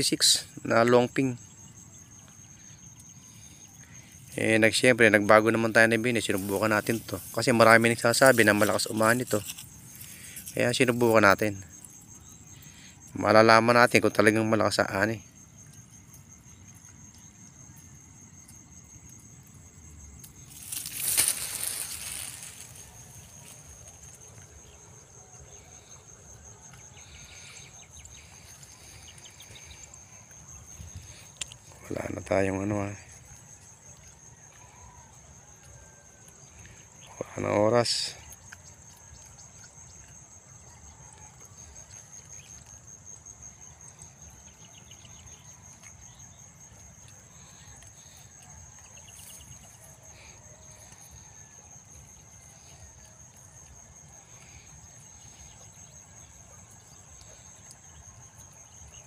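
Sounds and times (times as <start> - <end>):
high-pitched insect trill: 0.0 - 59.0
leaves rustling against phone: 4.4 - 11.4, 20.2 - 25.1.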